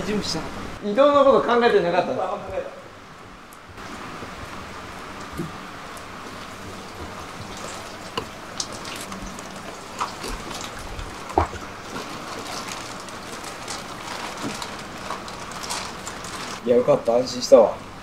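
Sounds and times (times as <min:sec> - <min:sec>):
water rushing: 0:03.0 - 0:16.7
water dripping and plopping: 0:03.5 - 0:16.6.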